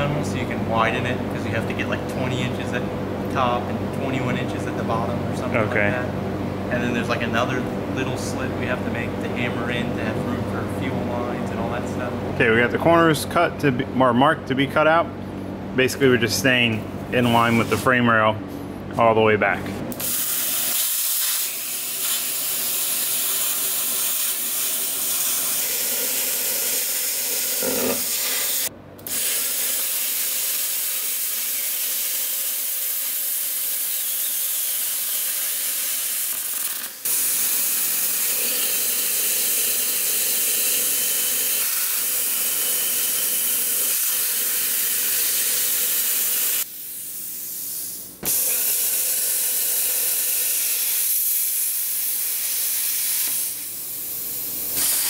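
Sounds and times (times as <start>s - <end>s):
plasma cutter cutting sheet steel: 20.0s - 47.0s, 48.2s - 53.8s, 54.7s - 55.0s.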